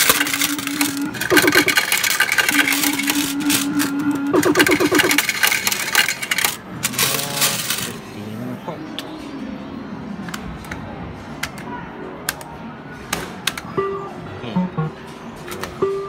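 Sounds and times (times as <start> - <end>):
loud electronic jingle: 0.0 - 5.3
coins clinking in metal tray: 0.0 - 8.0.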